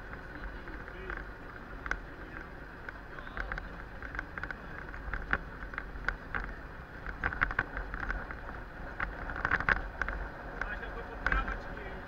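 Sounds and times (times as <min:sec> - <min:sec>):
light rattles and clicks: 0:00.0 - 0:12.0
low road rumble: 0:00.0 - 0:12.0.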